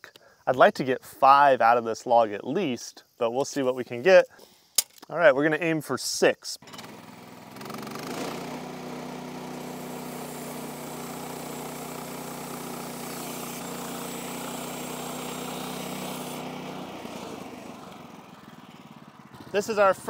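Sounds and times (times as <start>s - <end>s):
bandsaw mill engine running: 6.6s - 20.0s
bandsaw blade cutting hiss: 7.6s - 18.0s.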